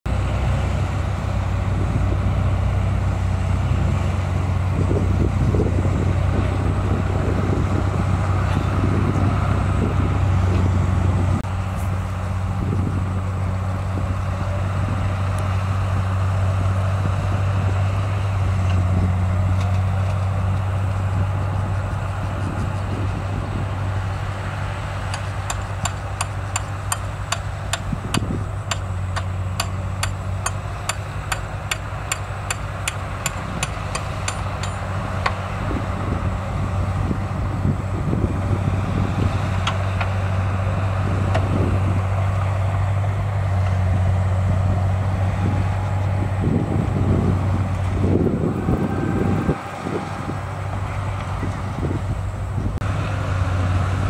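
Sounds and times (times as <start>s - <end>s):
bulldozer diesel engine droning: 0.1s - 54.0s
sharp evenly spaced clicks: 28.7s - 34.8s.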